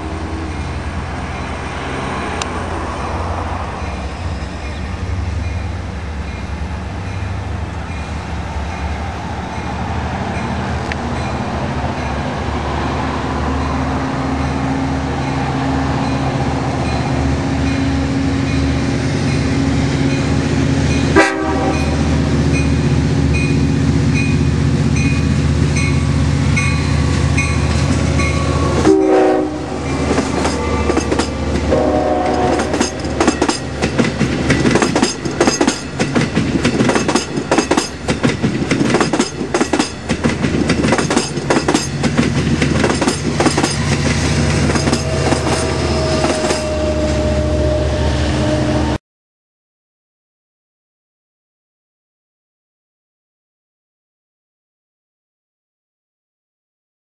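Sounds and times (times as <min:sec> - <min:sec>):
locomotive engine hum: 0:00.0 - 0:49.0
train bell ringing: 0:10.4 - 0:12.2, 0:13.6 - 0:42.2, 0:42.8 - 0:48.6
train horn blasts: 0:21.0 - 0:22.4, 0:26.9 - 0:33.3, 0:44.5 - 0:49.0
wheels clacking over rail joints: 0:25.8 - 0:47.3.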